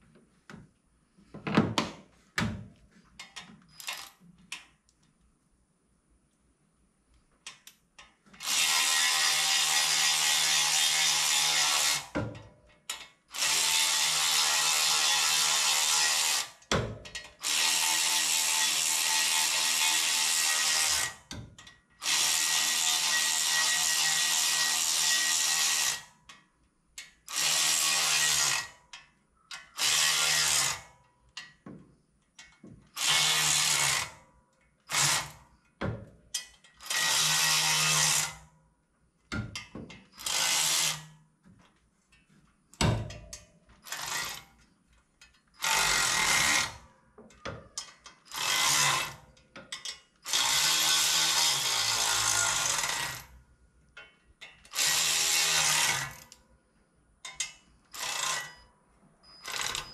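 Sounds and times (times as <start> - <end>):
ratchet clicks: 3.2 - 4.9, 7.4 - 31.6, 47.8 - 53.2, 57.2 - 59.9.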